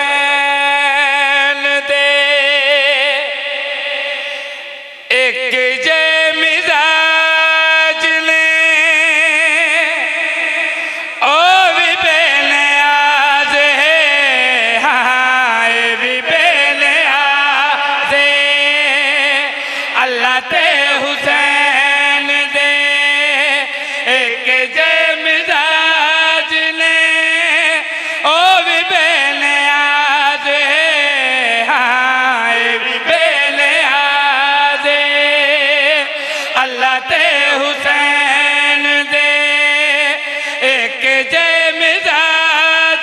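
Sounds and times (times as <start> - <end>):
man chanting devotional verse: 0.0 - 43.0
man singing drawn-out notes: 0.0 - 43.0
breaths between phrases: 4.1 - 5.1, 10.7 - 11.2, 19.5 - 20.0, 23.7 - 24.1, 27.8 - 28.3, 36.1 - 36.6, 40.2 - 40.6.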